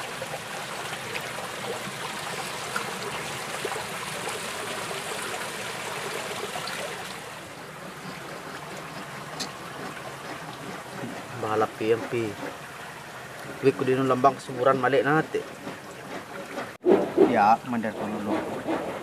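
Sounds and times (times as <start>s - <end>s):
water running down sluice box: 0.0s - 16.8s.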